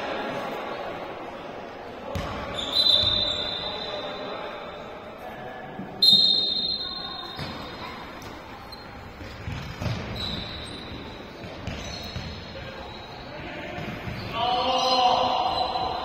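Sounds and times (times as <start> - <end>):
voices of players and spectators: 0.0 - 16.0
referee's whistle blast: 2.6 - 4.1, 6.0 - 7.4
ball bouncing: 9.2 - 12.4.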